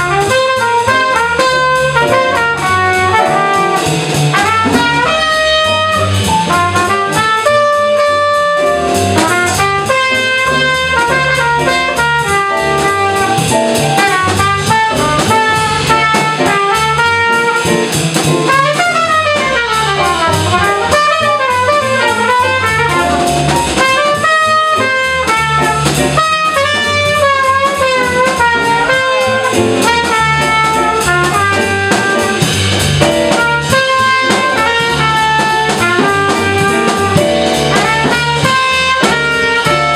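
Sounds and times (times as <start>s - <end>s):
drum kit: 0.0s - 39.9s
trumpet solo: 0.0s - 39.9s
upright bass: 0.0s - 39.9s
electric keyboard: 36.6s - 37.8s.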